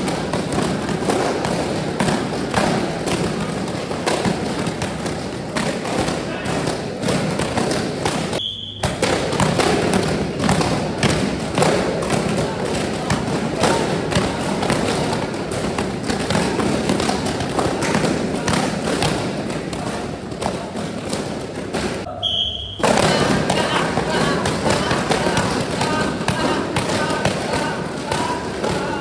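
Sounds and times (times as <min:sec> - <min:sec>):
kicks smacking paddles: 0:00.0 - 0:22.1, 0:22.8 - 0:29.0
group chatter: 0:09.2 - 0:29.0.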